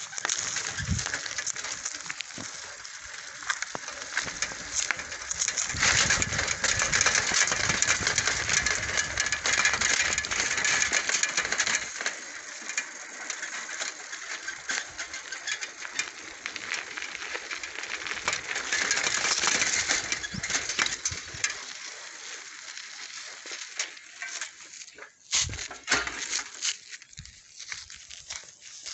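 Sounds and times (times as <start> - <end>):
small clicks and rattles: 0.0 - 28.5
bicycle tyres on dirt track: 0.0 - 28.9.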